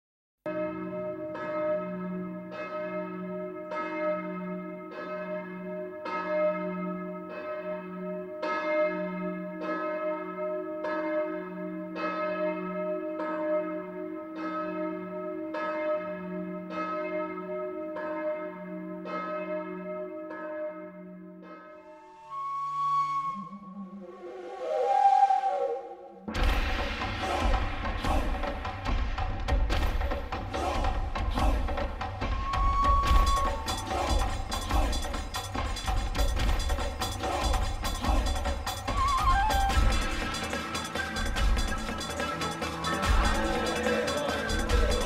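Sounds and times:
held low tone: 21.8s - 26.2s
bells ringing: 39.8s - 45.0s.

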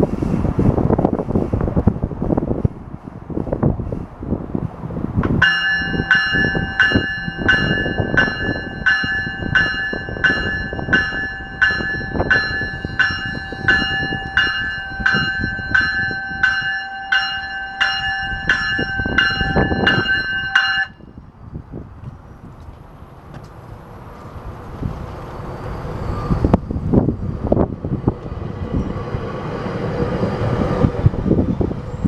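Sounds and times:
low train rumble: 0.0s - 32.0s
wind: 0.0s - 32.0s
train warning bell ringing: 5.4s - 21.2s.

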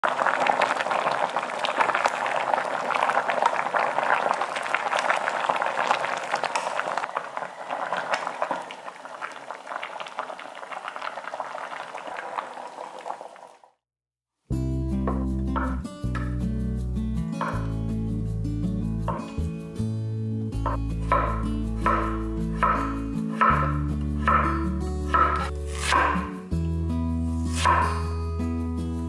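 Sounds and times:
stew boiling with bubbling pops: 0.0s - 13.8s.

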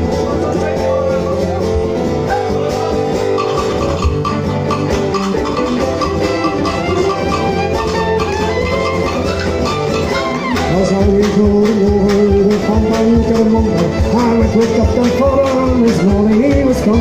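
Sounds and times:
folk band playing: 0.0s - 17.0s
man singing: 10.5s - 17.0s.

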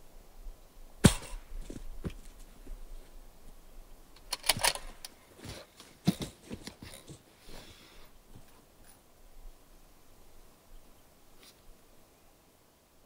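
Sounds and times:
rifle handling knocks and clicks: 4.2s - 5.2s.

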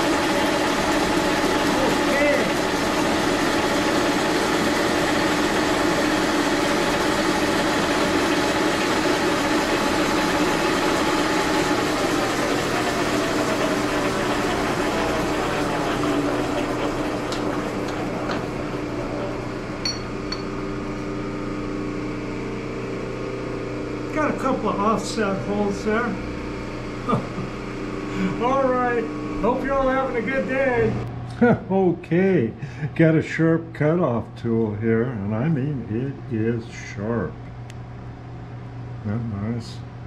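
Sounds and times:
machine motor whining: 0.0s - 20.3s.

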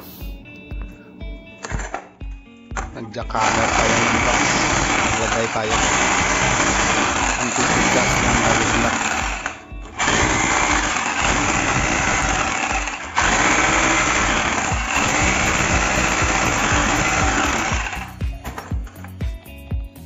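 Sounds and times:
rotary hammer chipping concrete: 3.4s - 18.2s.

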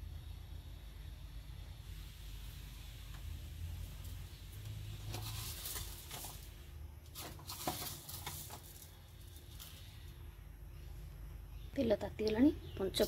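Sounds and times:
gas burner rumble: 0.0s - 11.6s
oil crackling: 1.9s - 10.2s.

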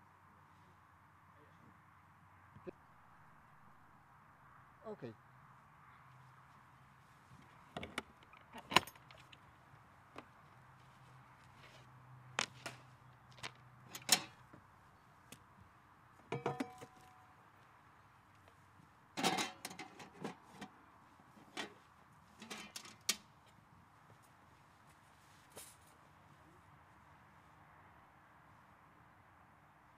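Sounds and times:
metal pots and pans clattering: 16.3s - 17.0s, 19.2s - 20.3s.

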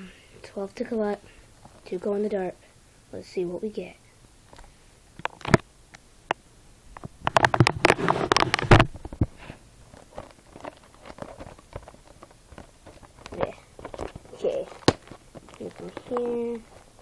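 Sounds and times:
plastic wrap crinkling: 7.2s - 17.0s.

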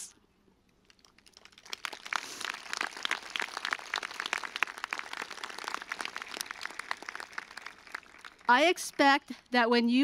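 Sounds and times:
audience applauding: 1.0s - 9.0s.

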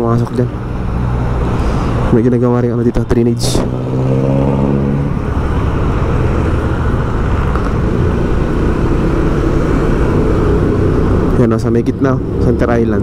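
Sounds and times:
road traffic: 0.0s - 13.0s
low droning tone: 3.4s - 11.4s.

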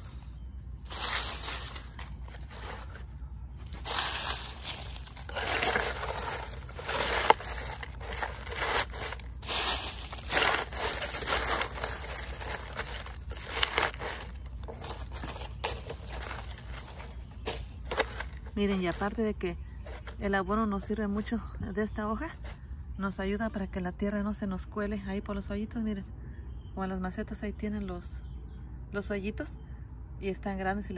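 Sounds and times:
dry leaves crackling and rustling: 0.0s - 19.2s, 19.9s - 20.2s.

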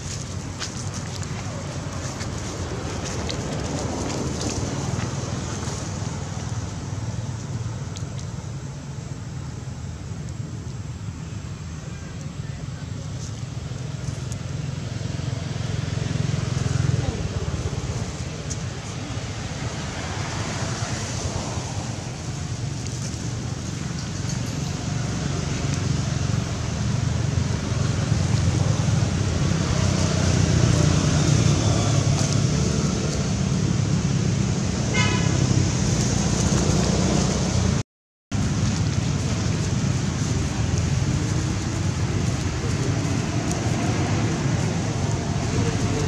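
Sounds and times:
distant traffic rumble and hiss: 0.0s - 46.0s
heavy low rumble: 35.8s - 46.0s.

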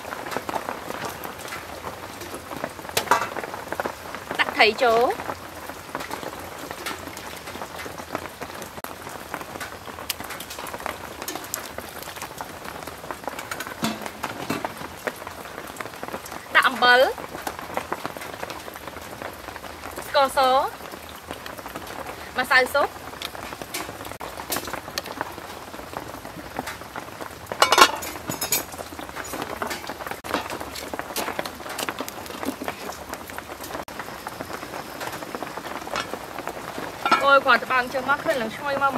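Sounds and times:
heavy rain falling: 0.0s - 38.9s
metal pot lid clanking: 13.4s - 14.8s, 27.6s - 30.6s, 37.0s - 37.4s
ladle stirring a pot: 13.4s - 14.9s.

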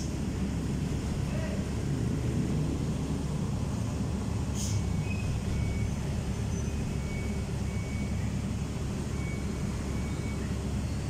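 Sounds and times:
excavator diesel engine rumbling: 0.0s - 11.0s
brief hiss: 4.5s - 4.8s.

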